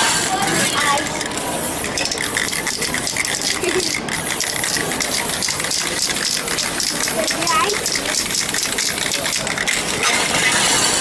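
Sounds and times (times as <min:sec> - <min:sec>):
spray paint cans hissing: 0:00.0 - 0:11.0.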